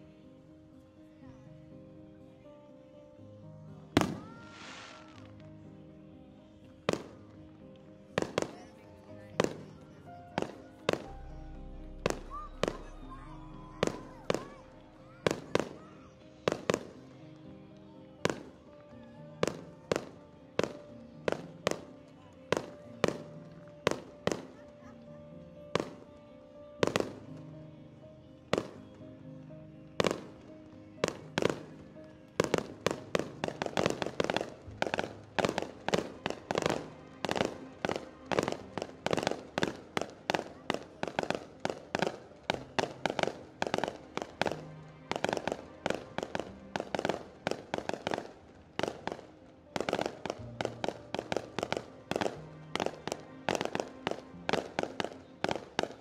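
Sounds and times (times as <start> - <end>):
music: 0.0 - 56.0
fireworks bursting: 3.9 - 5.4, 6.6 - 7.4, 8.0 - 17.2, 18.2 - 18.7, 19.4 - 25.0, 25.7 - 26.2, 26.8 - 27.4, 28.5 - 29.0, 30.0 - 56.0.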